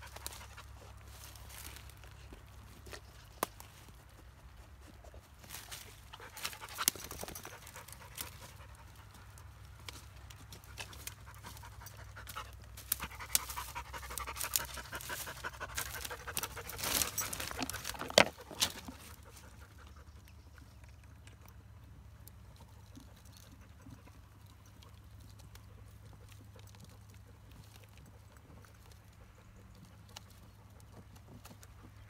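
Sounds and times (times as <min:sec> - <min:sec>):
dog panting: 0:10.4 - 0:21.4
wood clicks and cracks: 0:15.8 - 0:19.2.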